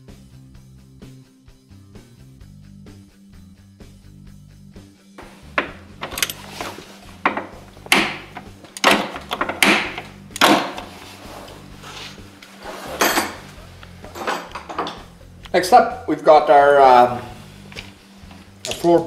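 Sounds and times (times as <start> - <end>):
background rock music: 0.0 - 19.0
hand tools clacking and rattling: 5.5 - 11.0, 12.7 - 15.2, 18.6 - 19.0.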